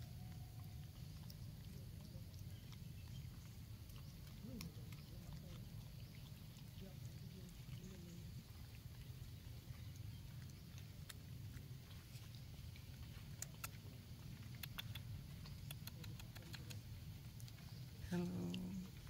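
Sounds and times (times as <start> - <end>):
faint sharp clicks: 14.5 - 17.6.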